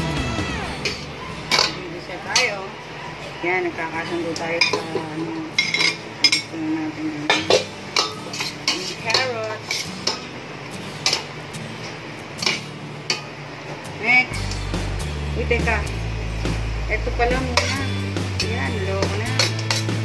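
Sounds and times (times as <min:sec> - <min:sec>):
metal utensil scraping a pot: 0:07.3 - 0:10.3, 0:19.1 - 0:20.0.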